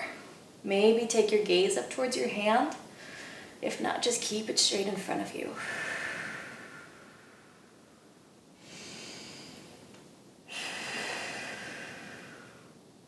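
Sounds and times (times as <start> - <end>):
woman breathing: 2.9 - 3.6, 5.6 - 12.8.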